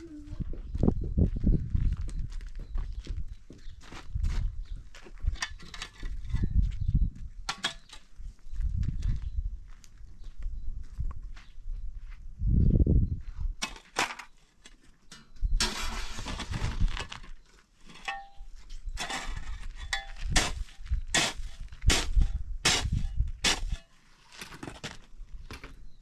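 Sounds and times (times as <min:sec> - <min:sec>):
rough scraping: 0:15.6 - 0:25.0.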